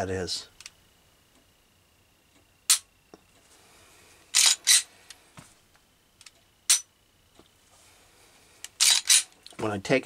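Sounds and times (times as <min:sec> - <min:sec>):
pistol slide racking clacks: 0:04.4 - 0:04.8, 0:08.8 - 0:09.3.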